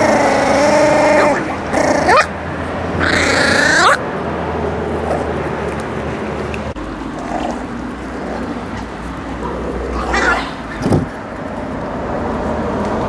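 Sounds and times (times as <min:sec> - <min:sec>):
puppy growling: 0:00.0 - 0:04.1, 0:04.9 - 0:05.8, 0:07.0 - 0:11.2
outdoor background noise: 0:00.0 - 0:13.0.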